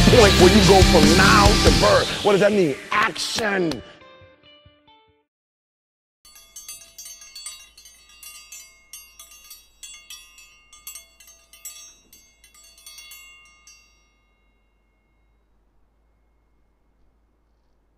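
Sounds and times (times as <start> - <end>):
high ringing chimes: 6.3 - 17.4.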